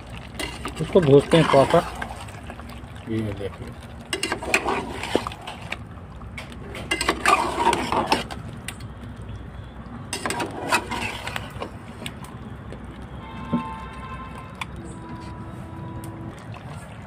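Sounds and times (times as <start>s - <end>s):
metal spatula scraping metal pot: 0.3s - 2.3s, 4.1s - 5.8s, 6.7s - 8.4s, 10.1s - 11.8s.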